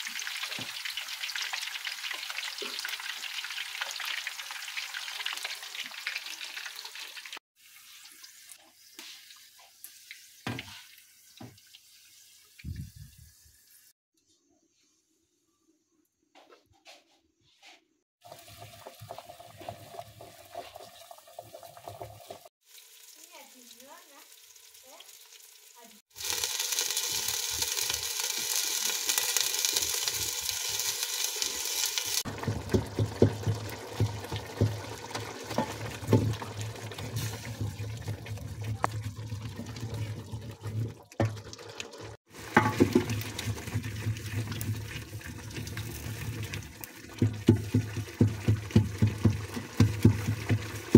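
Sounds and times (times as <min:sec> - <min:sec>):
tomatoes sizzling in hot oil: 0:00.0 - 0:13.9, 0:18.2 - 0:40.7, 0:41.3 - 0:50.9.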